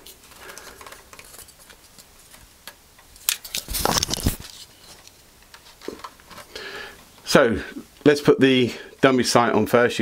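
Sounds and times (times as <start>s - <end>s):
plastic parts clicking and rattling: 0.0s - 6.5s.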